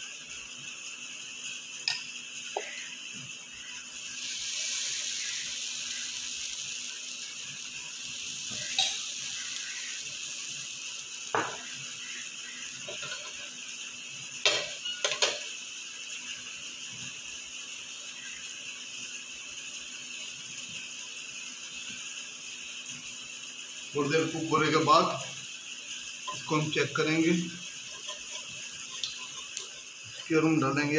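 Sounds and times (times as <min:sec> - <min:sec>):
batter sizzling on a hot pan: 0:00.0 - 0:30.9
utensil clicking against pan: 0:27.9 - 0:29.8.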